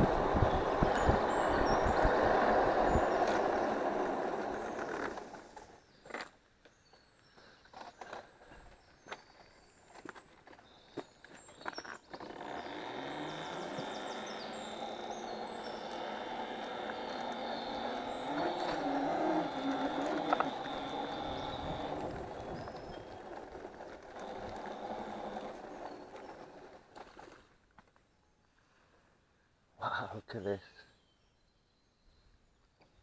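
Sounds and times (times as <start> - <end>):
road noise: 0.0 - 5.8, 12.2 - 27.4
electric scooter motor whine: 0.0 - 5.9, 10.9 - 27.5.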